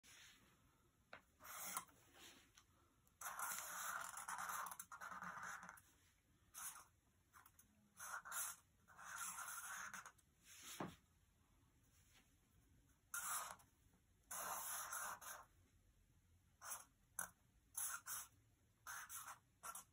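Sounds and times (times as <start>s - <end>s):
pen scratching on paper: 1.4s - 2.0s, 3.2s - 5.9s, 6.5s - 10.2s, 13.1s - 13.7s, 14.3s - 15.5s, 16.6s - 19.9s.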